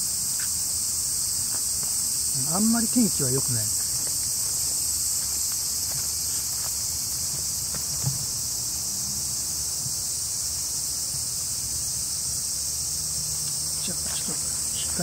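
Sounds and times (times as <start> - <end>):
insects chorus hissing: 0.0 - 15.0
soft thump: 7.3 - 8.3.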